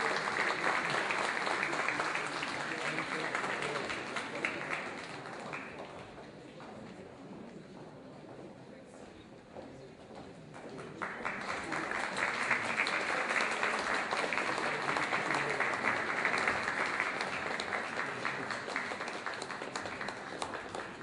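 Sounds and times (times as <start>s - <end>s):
audience applauding: 0.0s - 6.1s, 11.0s - 21.0s.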